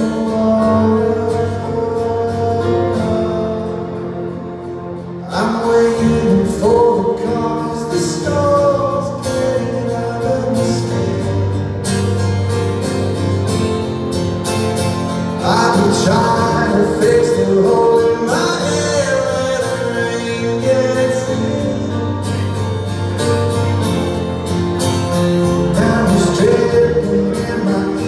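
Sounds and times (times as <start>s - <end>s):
man singing: 0.0s - 4.3s, 5.2s - 11.8s, 15.4s - 22.7s, 25.5s - 28.0s
keyboard accompaniment: 0.0s - 28.0s
strummed acoustic guitar: 0.0s - 28.0s.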